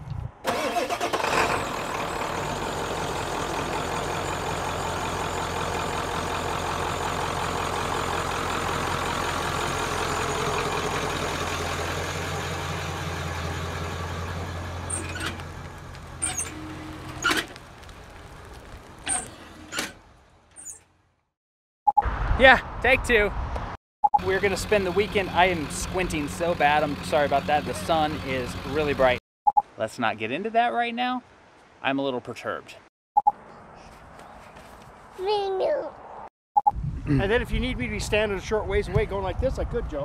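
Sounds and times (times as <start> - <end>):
diesel truck passing: 0.5 - 19.8, 24.2 - 29.2.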